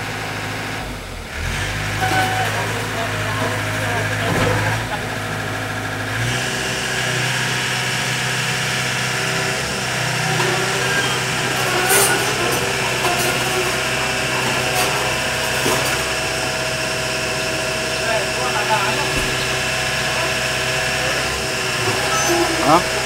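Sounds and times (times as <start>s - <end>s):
excavator diesel engine running: 0.0s - 23.0s
short knocks: 19.0s - 19.8s.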